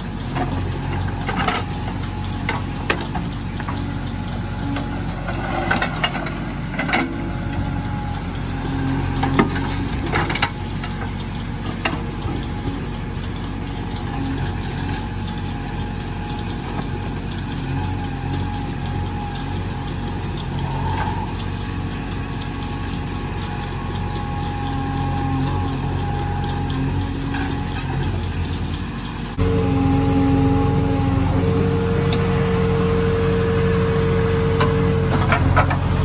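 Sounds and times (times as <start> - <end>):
diesel engine running: 0.0 - 36.0
high steady whine: 29.4 - 35.7.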